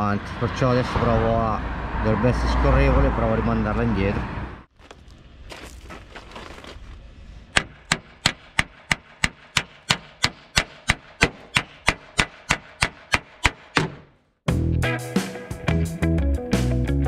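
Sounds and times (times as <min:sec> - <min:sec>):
music: 0:14.4 - 0:17.0.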